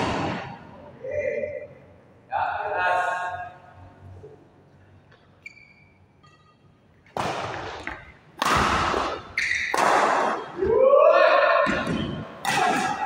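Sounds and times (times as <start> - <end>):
shoes squeaking on court mat: 5.1 - 6.7, 9.1 - 9.8.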